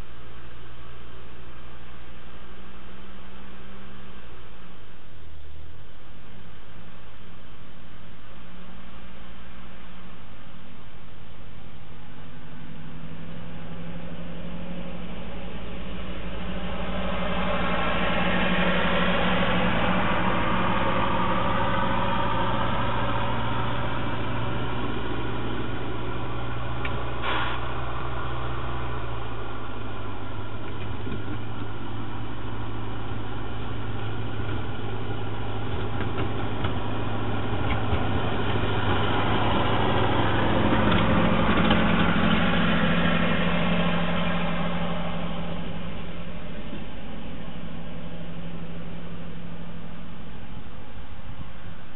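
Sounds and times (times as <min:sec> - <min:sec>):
tractor engine running: 0:11.2 - 0:51.9.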